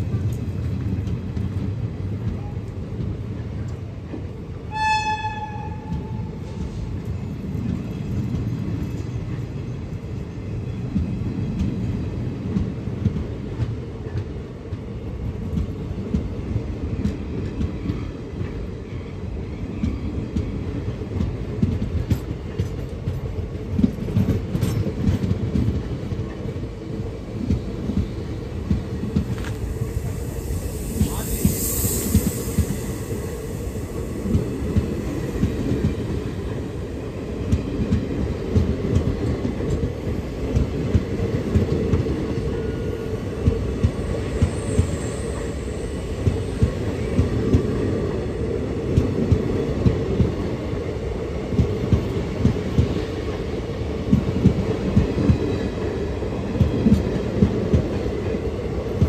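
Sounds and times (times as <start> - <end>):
train rumbling: 0.0 - 59.0
train horn blast: 4.7 - 6.4.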